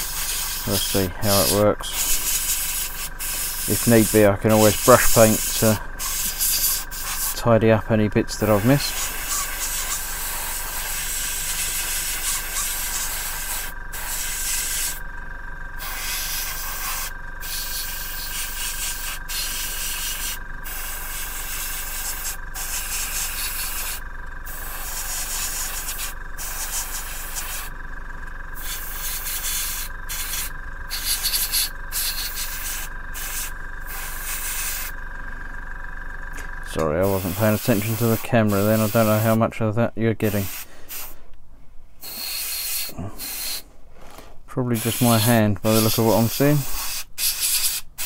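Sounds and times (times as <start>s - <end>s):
airbrush hissing: 0.0s - 7.5s, 8.3s - 15.0s, 15.8s - 27.7s, 28.6s - 35.0s, 37.0s - 39.4s, 40.2s - 41.2s, 42.0s - 43.7s, 44.8s - 48.0s
steady thin tone: 0.0s - 10.0s
low hum: 0.0s - 42.2s.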